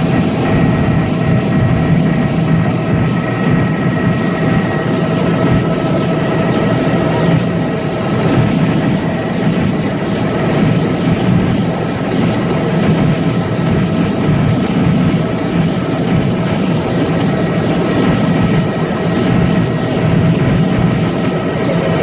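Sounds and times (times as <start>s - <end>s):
helicopter rotor and engine drone: 0.0s - 22.0s.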